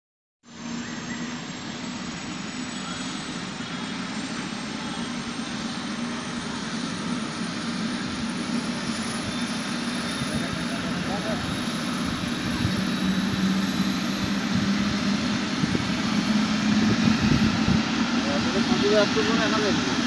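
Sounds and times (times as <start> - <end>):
helicopter engine and rotor: 0.5 - 20.0
high-pitched turbine whine: 0.5 - 20.0.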